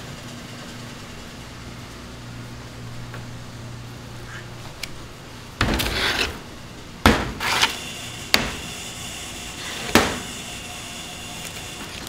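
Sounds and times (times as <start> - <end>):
short scrape: 5.8 - 6.4.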